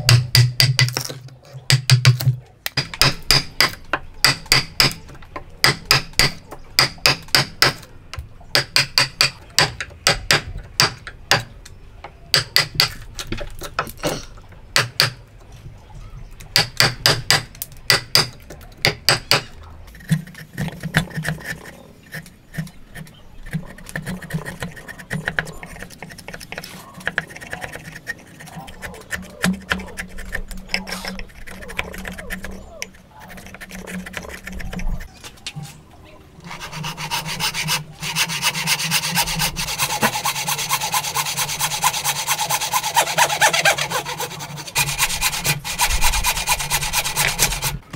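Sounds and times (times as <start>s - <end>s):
hammer striking chisel: 0.0s - 1.1s, 1.7s - 5.0s, 5.6s - 7.8s, 8.5s - 11.5s, 12.4s - 13.0s, 16.6s - 19.5s
chisel scraping wood: 17.9s - 35.2s, 36.4s - 47.8s.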